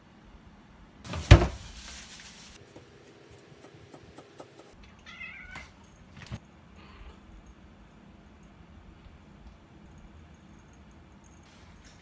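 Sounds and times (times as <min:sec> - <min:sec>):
cat meowing: 0:04.8 - 0:05.8.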